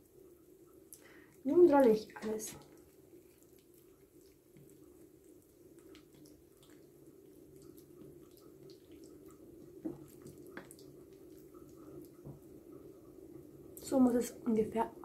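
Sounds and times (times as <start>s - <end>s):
steady low hum: 0.0s - 15.0s
wet squishing of raw chicken: 2.1s - 12.3s.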